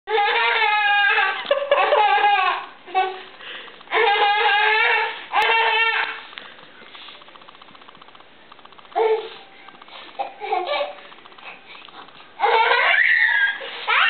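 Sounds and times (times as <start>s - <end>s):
toddler crying: 0.1s - 3.3s, 3.9s - 6.2s, 10.2s - 11.0s, 12.4s - 14.0s.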